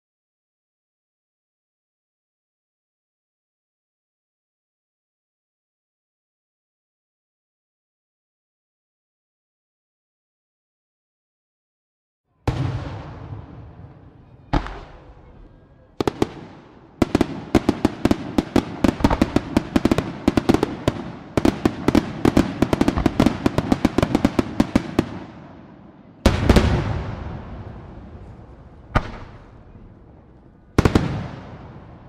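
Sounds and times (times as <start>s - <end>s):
fireworks cracking: 12.5s - 25.4s, 26.2s - 32.0s.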